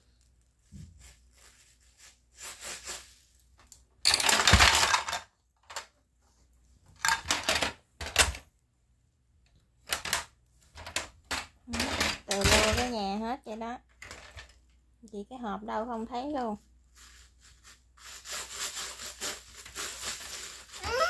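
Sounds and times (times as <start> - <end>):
plastic toy pieces rattling: 4.0 - 5.9, 7.0 - 8.4, 9.9 - 13.0, 18.3 - 21.0.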